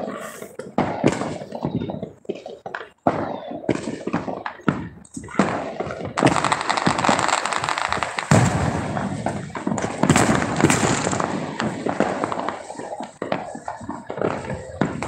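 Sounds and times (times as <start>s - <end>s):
fireworks bangs: 0.0s - 15.0s
fireworks crackling pops: 0.0s - 15.0s.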